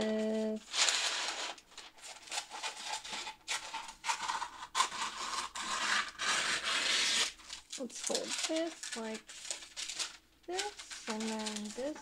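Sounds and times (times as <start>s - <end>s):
paper crinkling and scraping: 0.0s - 12.0s.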